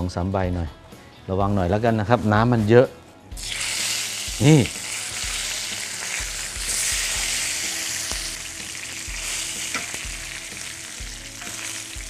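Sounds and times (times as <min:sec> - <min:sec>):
leaves sizzling in hot oil: 0:03.4 - 0:12.0.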